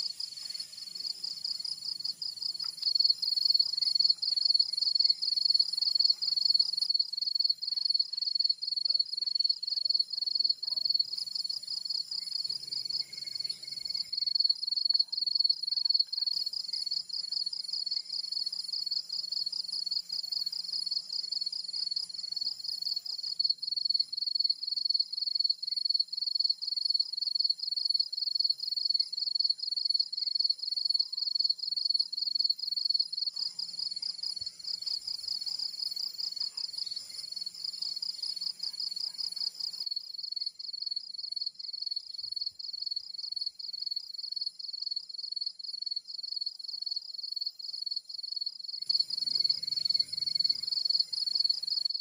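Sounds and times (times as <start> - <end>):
insect chorus trilling: 48.7 - 52.0.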